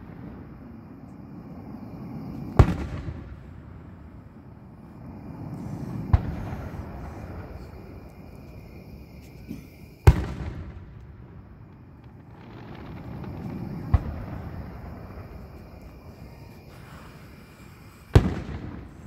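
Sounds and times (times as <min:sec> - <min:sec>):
firework shells bursting: 0:09.3 - 0:19.0.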